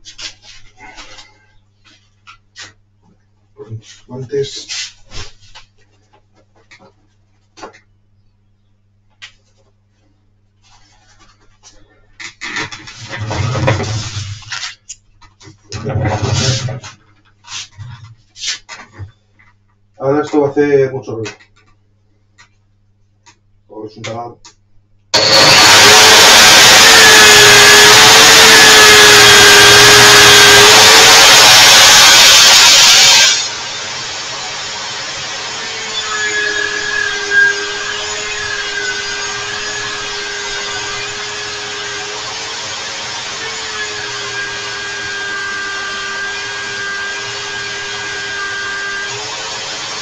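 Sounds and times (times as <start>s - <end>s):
electric drill whining: 25.2s - 50.0s.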